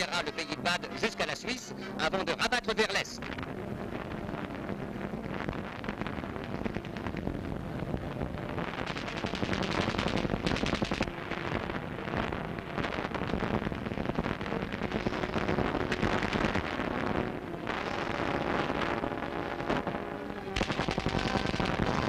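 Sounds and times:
machine-gun fire: 20.6 - 22.0.

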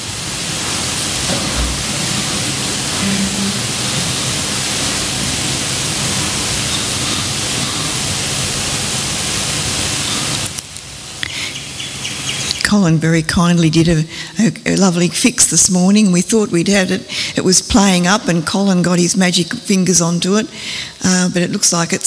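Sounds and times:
electronic static hiss: 0.0 - 12.9.

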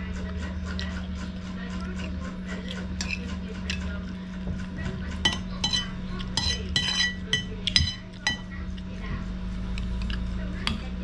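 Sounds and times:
steady low hum: 0.0 - 11.0
spoon clinking on ceramic plate: 5.2 - 8.5.

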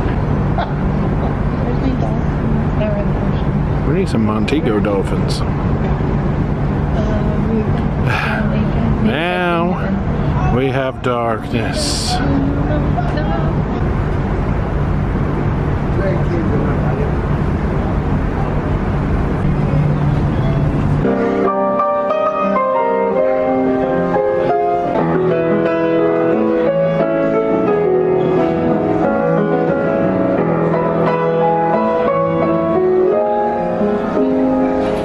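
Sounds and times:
low hum and rushing noise: 0.0 - 35.0
grand piano playing: 17.1 - 35.0.

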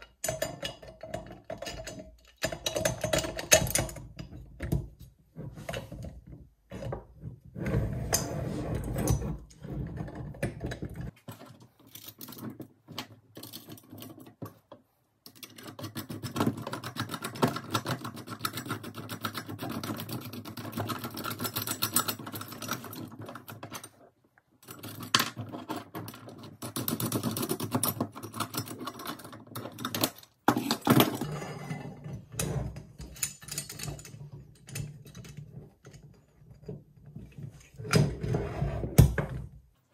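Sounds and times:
metal parts clinking and rattling: 15.3 - 24.0, 32.8 - 36.5.

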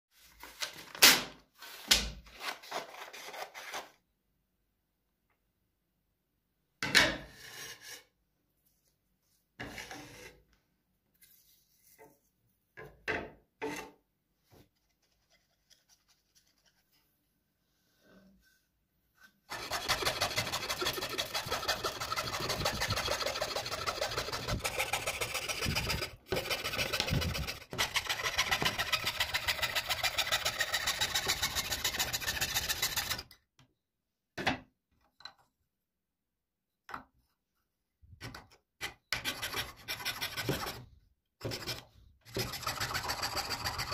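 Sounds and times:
scroll saw cutting wood: 19.5 - 33.3, 41.4 - 43.9.

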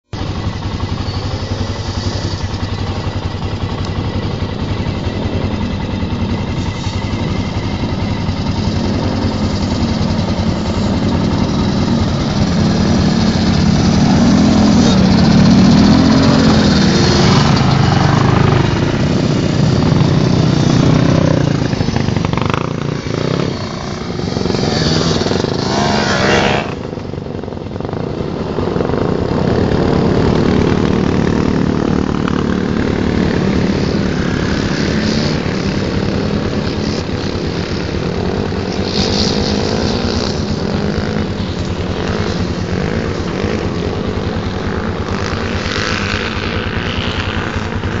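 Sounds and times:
quad and dirt bike engines: 0.0 - 48.0.

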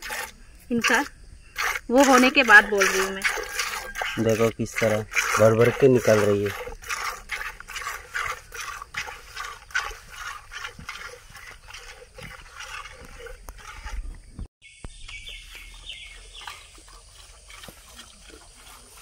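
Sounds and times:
milk squirting into plastic bucket: 1.6 - 14.2.

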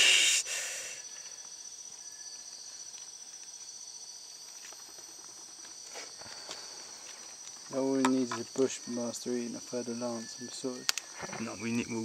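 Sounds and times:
night insects chorus: 0.0 - 12.0.

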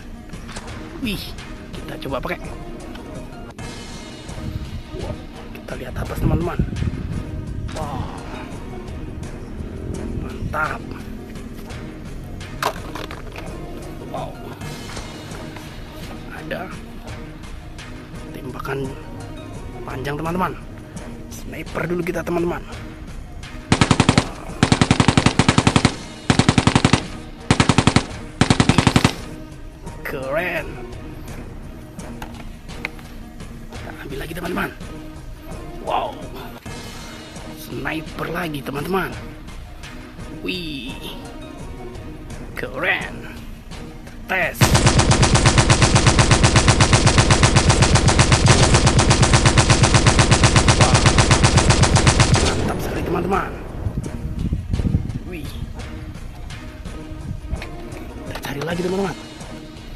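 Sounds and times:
toy gun rattling fire: 23.7 - 29.2, 44.6 - 52.6.

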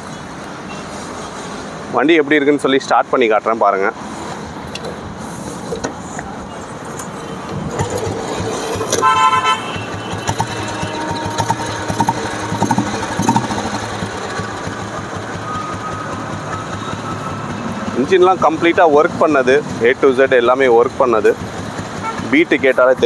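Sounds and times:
motorcycle engine running: 7.6 - 23.0
motorcycle horn toot: 8.8 - 15.8.

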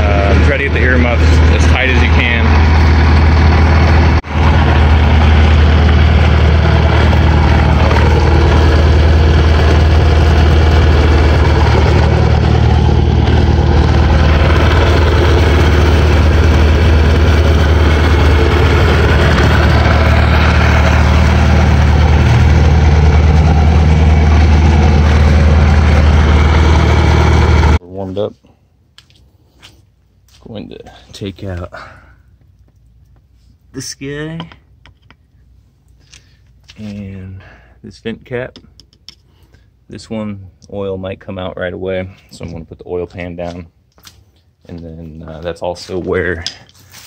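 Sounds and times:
boat engine idling: 0.0 - 27.8.

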